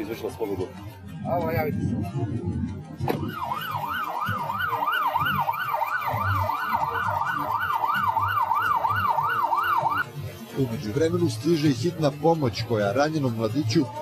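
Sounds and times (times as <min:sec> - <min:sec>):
ambulance siren yelping: 0:03.1 - 0:10.1.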